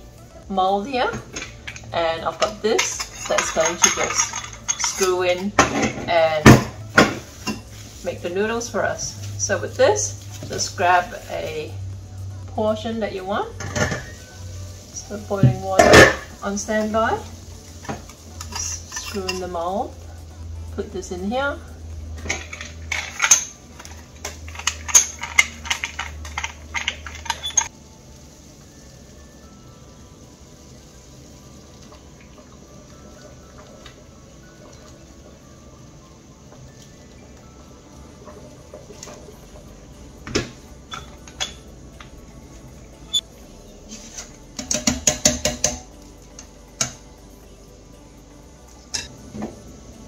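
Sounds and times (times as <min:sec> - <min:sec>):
quiet background music: 0:00.0 - 0:50.0
metal knocking against pot: 0:44.6 - 0:45.9.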